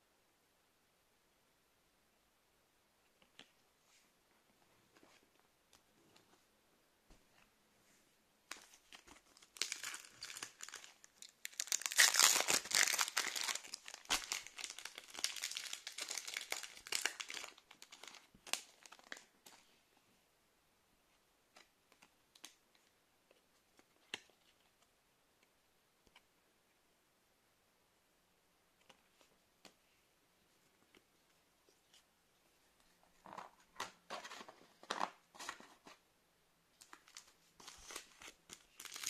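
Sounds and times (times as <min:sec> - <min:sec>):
foil wrapper tearing and crinkling: 0:09.4 - 0:19.1, 0:37.7 - 0:39.0.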